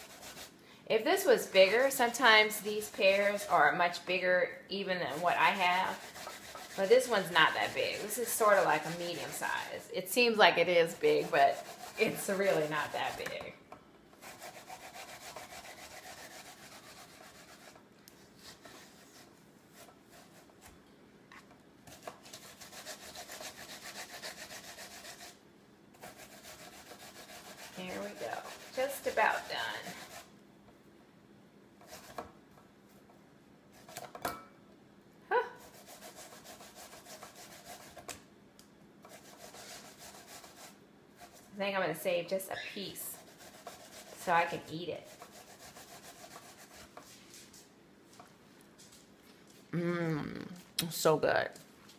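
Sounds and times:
pear rasping on metal grater: 5.0 - 9.8, 10.9 - 13.4, 14.2 - 17.8, 21.9 - 25.3, 26.0 - 30.3, 42.7 - 47.0.

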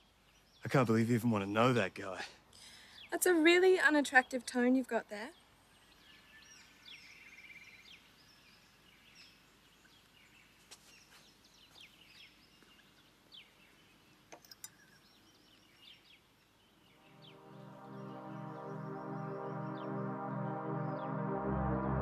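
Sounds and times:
faint birdsong chirps: 0.0 - 21.4
soft music: 17.0 - 22.0.

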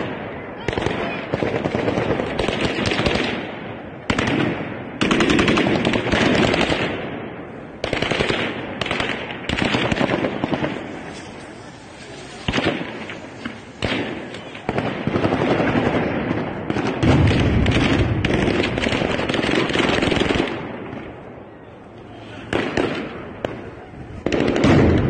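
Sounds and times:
rapid gunfire bursts: 0.7 - 3.4, 4.1 - 7.0, 7.8 - 10.8, 13.7 - 20.6.

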